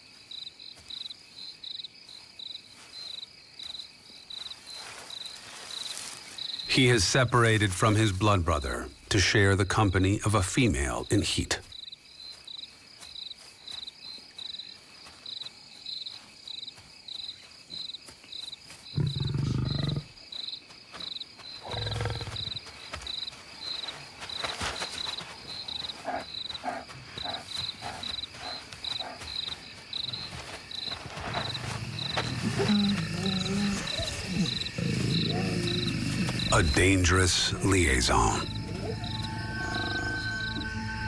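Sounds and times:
crickets chirping: 0.0s - 41.0s
lion grunts: 19.0s - 20.1s, 32.0s - 38.9s
lions growling: 19.0s - 20.1s, 21.6s - 22.4s, 31.7s - 36.9s.

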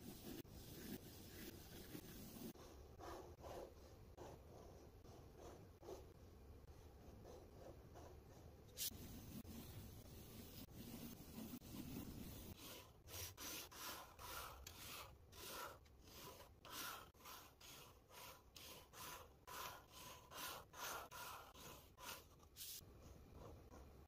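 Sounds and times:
pen nib scratching on paper: 0.0s - 6.2s, 10.7s - 24.0s.

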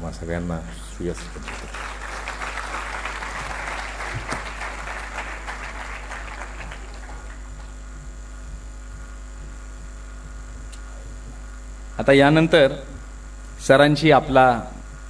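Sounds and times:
steady electrical hum: 0.0s - 15.0s
audience applauding: 1.1s - 7.8s.

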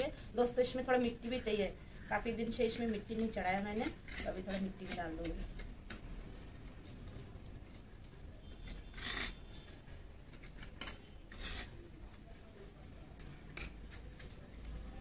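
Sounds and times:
hand scraping soil: 0.0s - 5.8s, 8.5s - 11.9s.

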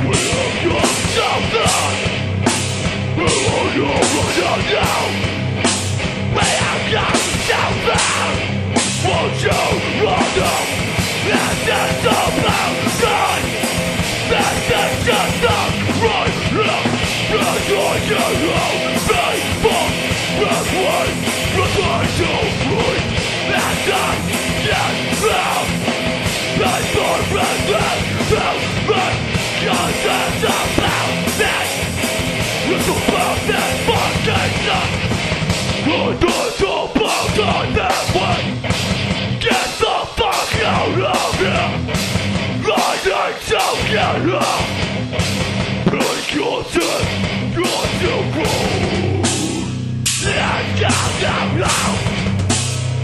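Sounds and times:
heavy rock music with vocals: 0.0s - 53.0s.

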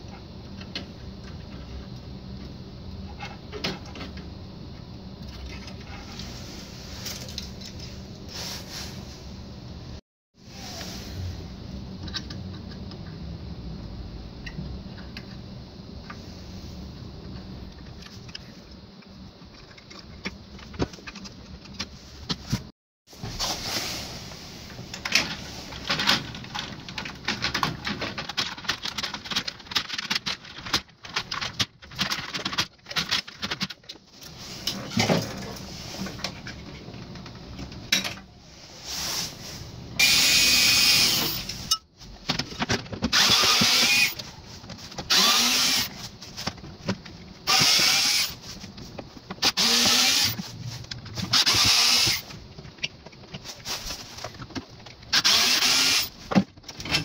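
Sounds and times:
clicks and rattles of tools: 17.8s - 22.7s, 24.9s - 38.3s
cordless electric screwdriver: 40.0s - 41.4s, 43.2s - 44.2s, 45.1s - 45.9s, 47.5s - 48.3s, 49.4s - 50.4s, 51.3s - 52.2s, 55.2s - 56.1s.

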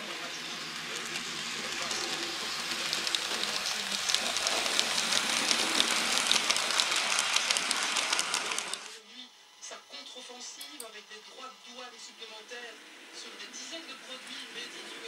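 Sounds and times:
model train rolling on track: 0.0s - 9.0s, 12.6s - 15.0s
wheels clicking over rail joints: 0.9s - 8.9s.

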